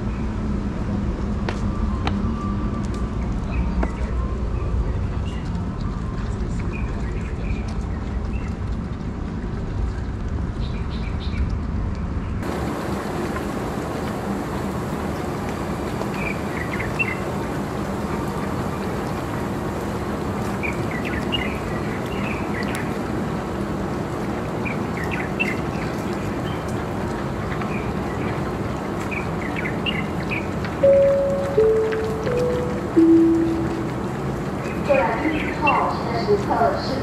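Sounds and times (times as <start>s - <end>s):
heavy low rumble: 30.5s - 36.7s.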